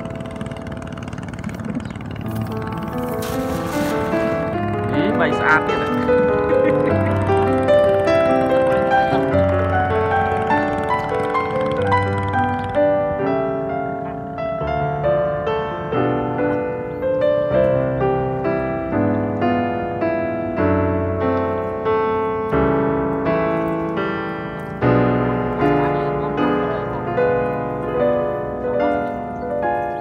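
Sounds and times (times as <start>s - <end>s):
gentle piano music: 0.0s - 30.0s.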